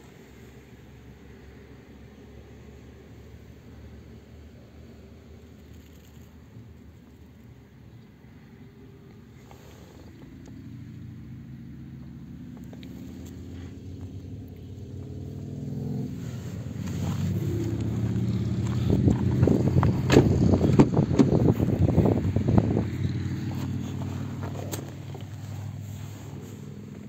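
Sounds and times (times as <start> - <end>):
car engine idling: 0.0 - 27.0
rough crackles: 15.9 - 27.0.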